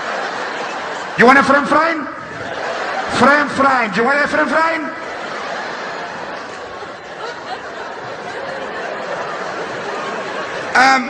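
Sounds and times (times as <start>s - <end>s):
audience laughing: 0.0s - 11.0s.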